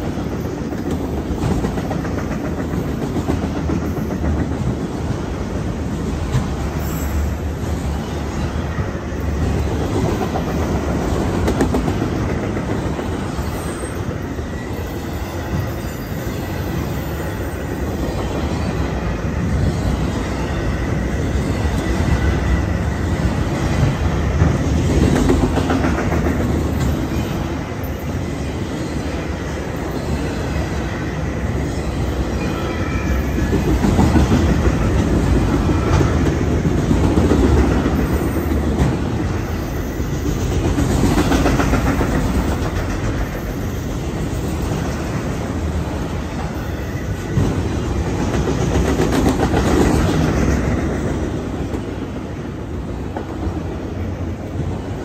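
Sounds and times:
freight train wheels on rails: 0:00.0 - 0:55.0
high wheel squeal: 0:06.7 - 0:08.4, 0:26.8 - 0:33.8.

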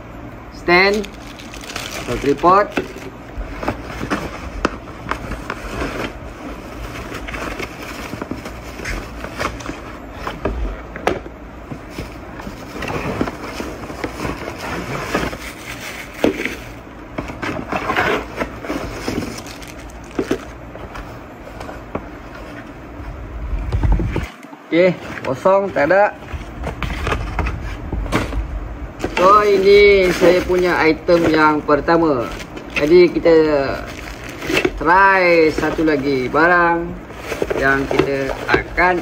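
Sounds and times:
plastic bags crinkling: 0:00.6 - 0:10.2, 0:18.0 - 0:20.6, 0:29.0 - 0:39.0.

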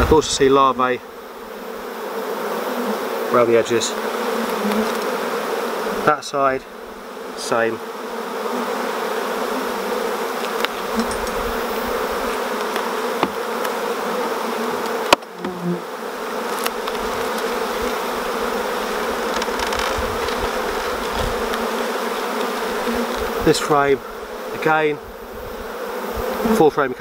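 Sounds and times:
bees buzzing: 0:00.0 - 0:27.0
wooden frames clicking: 0:19.1 - 0:21.7.

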